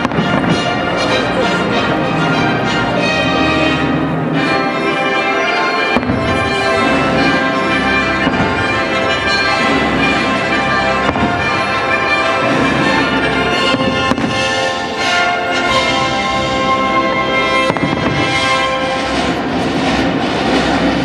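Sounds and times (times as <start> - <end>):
sharp firework bang: 0.0 - 0.8, 6.0 - 7.4, 8.2 - 9.0, 11.0 - 11.7, 13.7 - 14.5, 17.6 - 18.5
fireworks bursting: 0.0 - 21.0
loud music: 0.0 - 21.0.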